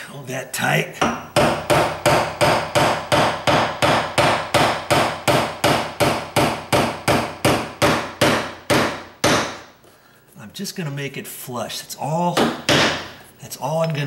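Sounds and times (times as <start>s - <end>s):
hammer tapping a nail into wood: 1.0s - 9.6s, 12.4s - 13.1s.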